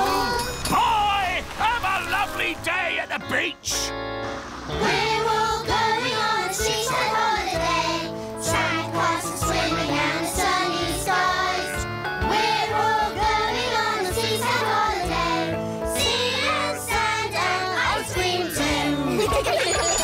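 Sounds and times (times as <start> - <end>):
musical accompaniment: 1.6 - 20.0
cartoon voices singing in chorus: 4.7 - 7.8, 8.4 - 20.0.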